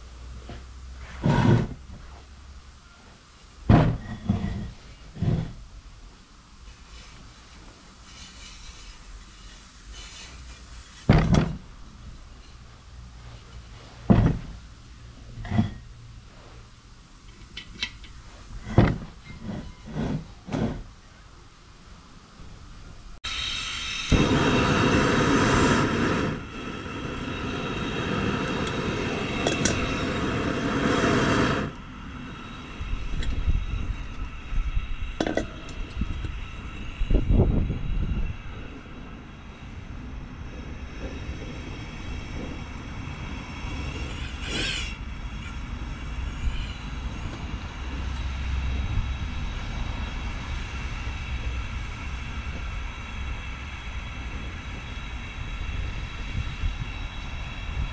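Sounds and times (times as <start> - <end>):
gas burner hissing: 0.0 - 57.9
metal pot knocks and clunks: 3.7 - 4.7, 18.7 - 19.7
burner low rumble: 23.8 - 57.9.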